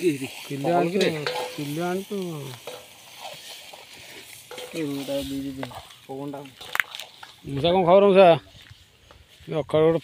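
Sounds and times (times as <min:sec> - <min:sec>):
meat sizzling in a pan: 0:00.0 - 0:07.5
ladle scraping a metal pan: 0:00.2 - 0:05.9.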